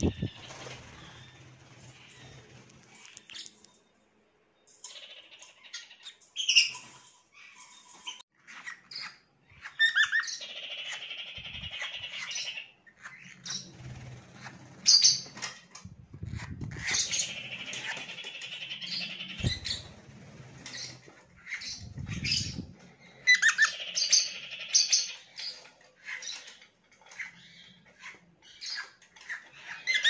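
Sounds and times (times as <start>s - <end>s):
birds chirping and chattering: 0.0s - 3.9s, 4.6s - 30.0s.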